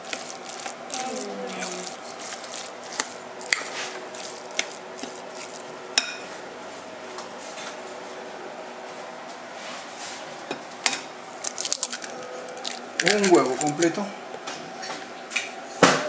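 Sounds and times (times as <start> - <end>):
spoon stirring in glass bowl: 0.0 - 6.4, 11.5 - 13.9.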